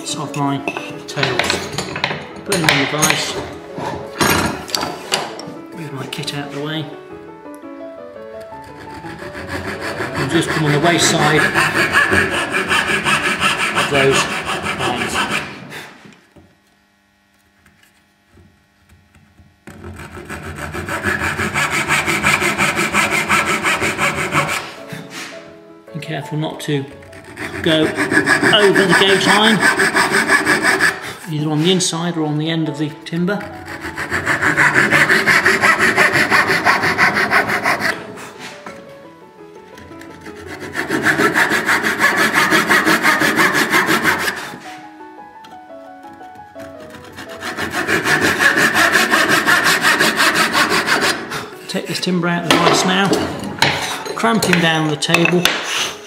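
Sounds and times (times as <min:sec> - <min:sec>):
hand saw cutting wood: 0:08.4 - 0:16.2, 0:19.7 - 0:25.3, 0:26.7 - 0:31.8, 0:33.1 - 0:38.6, 0:39.8 - 0:44.8, 0:46.0 - 0:51.6.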